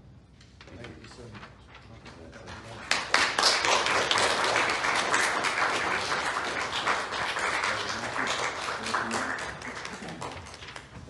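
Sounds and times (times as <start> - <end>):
crowd applauding: 2.9 - 11.0.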